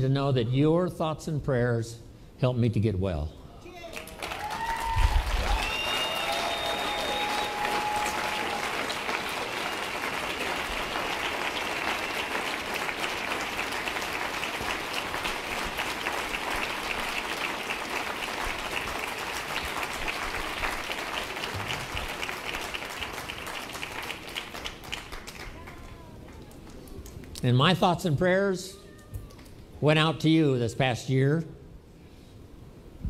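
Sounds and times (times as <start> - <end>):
large audience applauding: 3.8 - 27.4.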